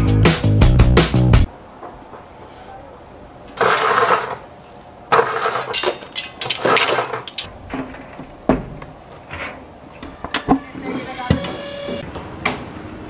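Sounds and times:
roller blind chain rattling: 3.5s - 4.5s, 5.1s - 7.5s.

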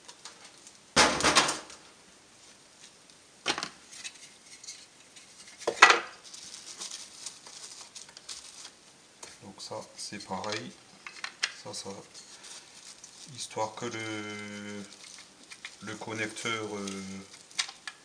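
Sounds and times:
rustling: 3.8s - 18.0s.

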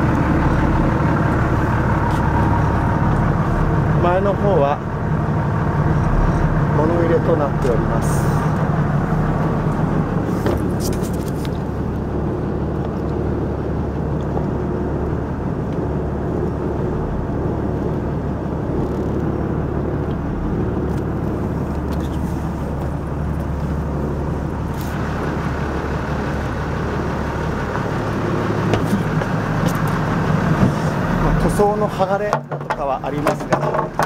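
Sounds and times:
engine running steadily: 0.0s - 34.0s.

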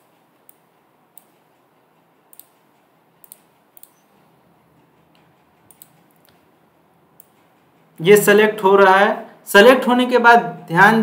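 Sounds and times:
computer mouse clicks: 0.4s - 1.4s, 2.3s - 4.1s, 5.0s - 6.5s.

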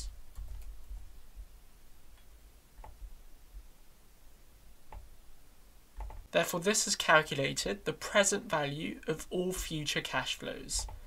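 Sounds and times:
keyboard and mouse clicks: 2.1s - 3.2s, 4.9s - 5.1s, 6.0s - 6.3s.

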